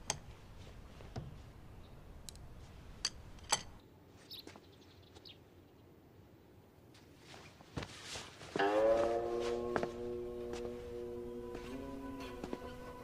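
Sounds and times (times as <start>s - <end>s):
faint bird chirps: 4.2s - 5.9s.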